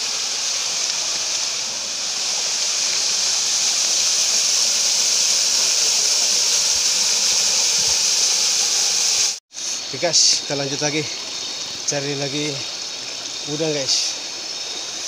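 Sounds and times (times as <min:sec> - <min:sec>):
river water flowing: 0:00.0 - 0:15.0.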